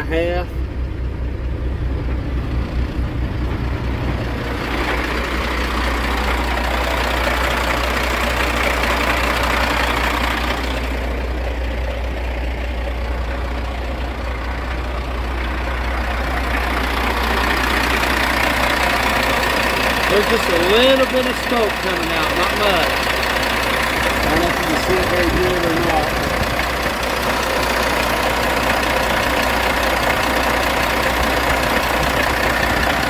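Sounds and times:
diesel truck engine idling: 0.0 - 33.0.

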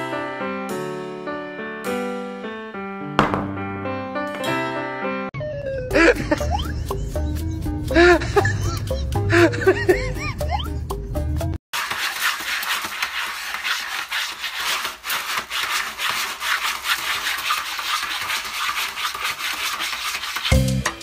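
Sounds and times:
cat scratching pellet litter: 11.8 - 20.6.

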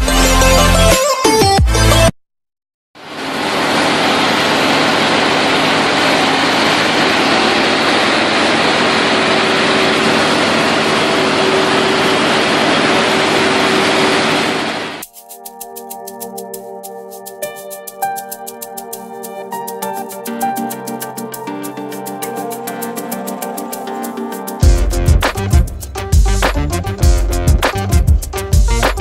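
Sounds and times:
tractor engine on rollers: 3.0 - 15.0.

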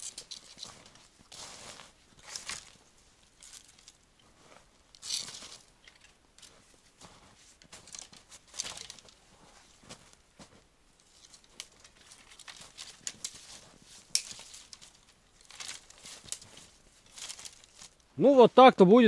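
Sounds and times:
dry sticks cracking and rustling: 0.0 - 18.1
boots crunching in snow: 0.4 - 5.7, 6.4 - 14.9.

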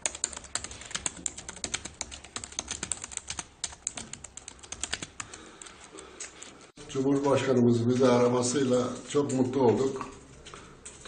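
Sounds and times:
fast typing on computer keyboard: 0.0 - 6.5.

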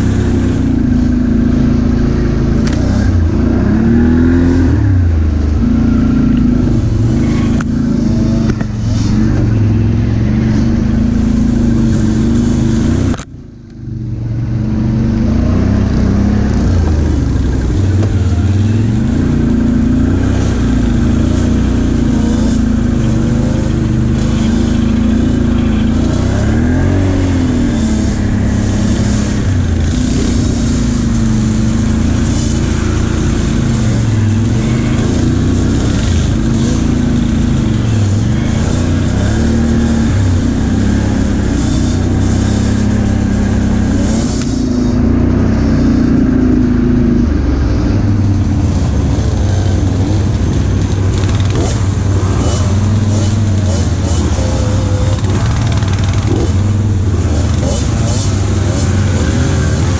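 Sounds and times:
atv engine revving: 0.0 - 59.9.

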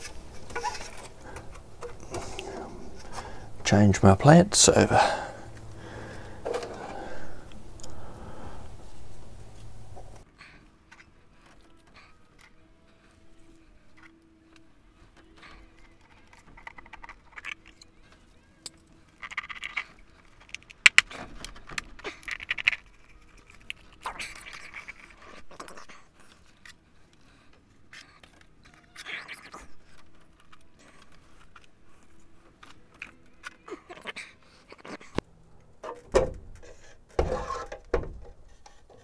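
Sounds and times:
plastic parts scraping and clicking: 0.0 - 3.8, 15.2 - 35.2, 35.8 - 39.0.

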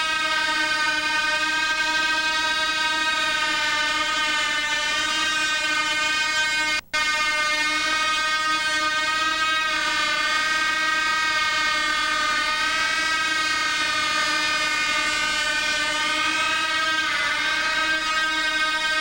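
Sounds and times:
model aircraft engine whine: 8.8 - 19.0.

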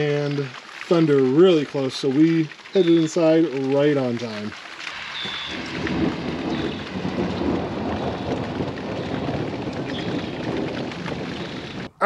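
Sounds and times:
heavy rain: 0.0 - 12.0
rolling thunder: 5.2 - 11.9.

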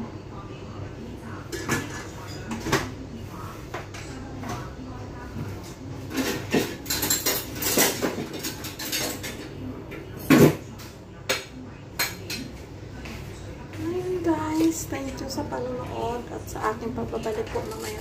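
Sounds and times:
dishes and cutlery clattering: 1.5 - 2.9, 5.4 - 10.6, 17.2 - 18.0.

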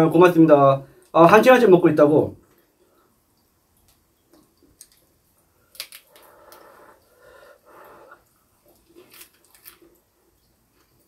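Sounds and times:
muffled eating sound: 2.4 - 11.0.

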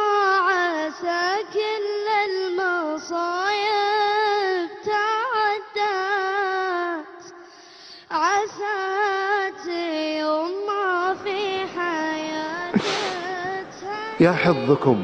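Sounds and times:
solo voice singing unaccompanied: 0.0 - 7.4, 8.1 - 15.0
singer breathing: 7.4 - 8.1, 12.7 - 13.7.

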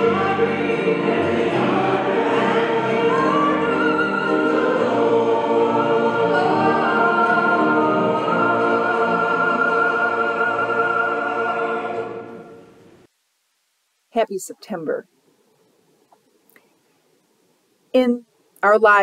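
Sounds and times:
choir singing sacred music: 0.0 - 13.1.

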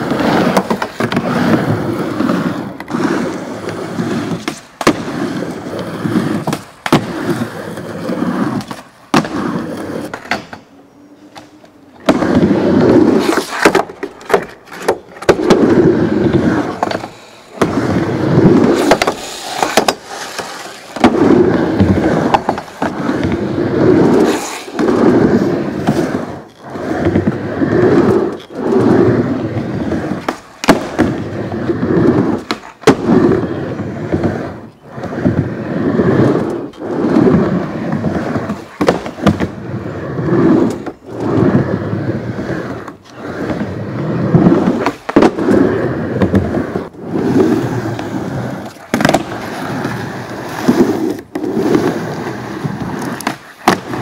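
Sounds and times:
skateboard wheels rolling on wood: 0.0 - 54.0
skateboard clacking on wood: 10.0 - 12.3, 13.2 - 15.6, 18.6 - 23.4, 38.5 - 39.6, 47.9 - 49.6, 52.6 - 54.0.

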